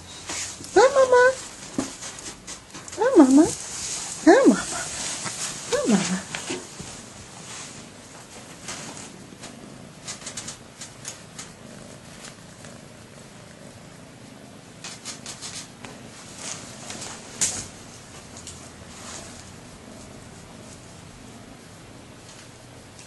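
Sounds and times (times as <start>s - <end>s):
cat purring: 0.1s - 23.0s
light clicks and rustles: 8.1s - 11.6s.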